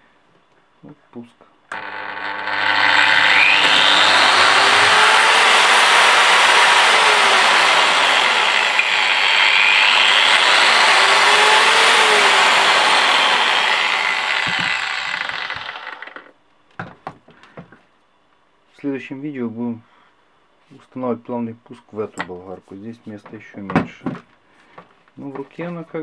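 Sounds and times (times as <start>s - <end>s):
angle grinder running: 1.7s - 16.3s
angle grinder winding down: 1.7s - 16.3s.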